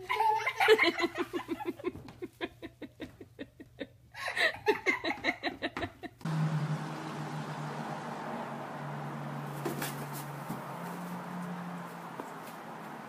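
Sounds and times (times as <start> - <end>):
person laughing: 0.0 - 6.2.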